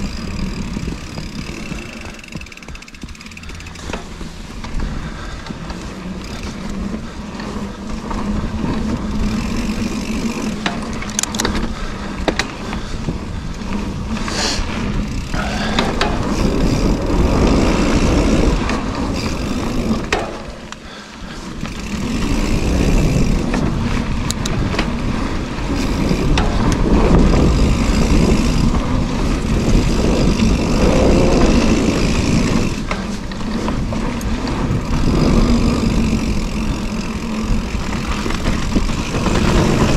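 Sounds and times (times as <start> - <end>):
bike clicks and rattles: 0.0 - 39.9
tyres rolling over dirt: 0.0 - 39.9
wind buffeting microphone: 0.0 - 39.9.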